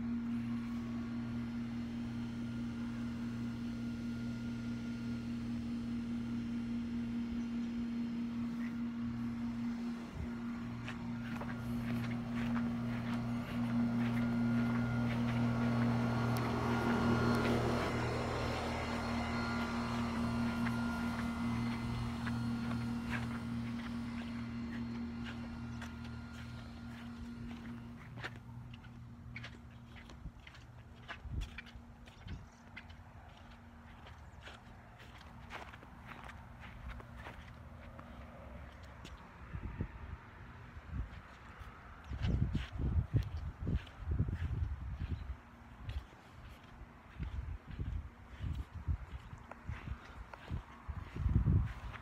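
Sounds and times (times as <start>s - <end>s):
steady low hum: 0.0s - 52.0s
footsteps in slide sandals: 9.5s - 39.3s, 41.1s - 52.0s.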